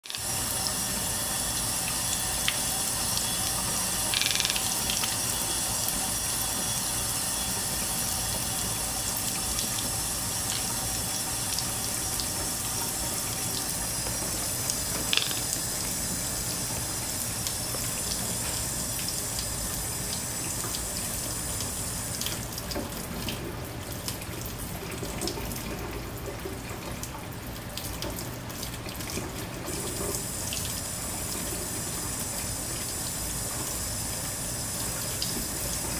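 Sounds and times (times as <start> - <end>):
tap running into steel sink: 2.4 - 5.2, 14.9 - 15.9.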